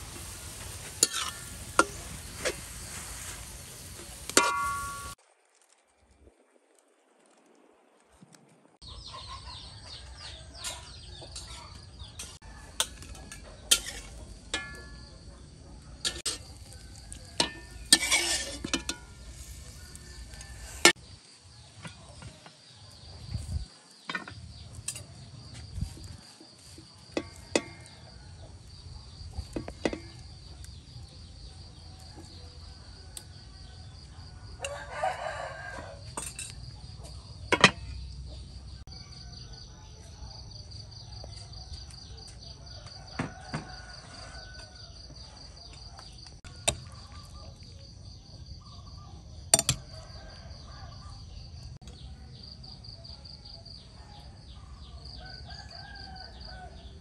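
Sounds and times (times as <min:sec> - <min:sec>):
insects droning: 0:00.0 - 0:07.4, 0:11.4 - 0:57.0
metal spoon clinking dishes: 0:00.1 - 0:02.2, 0:04.3 - 0:05.2, 0:10.6 - 0:15.1, 0:16.0 - 0:19.4
rooster crowing: 0:32.8 - 0:36.1, 0:42.7 - 0:45.4, 0:55.0 - 0:57.0.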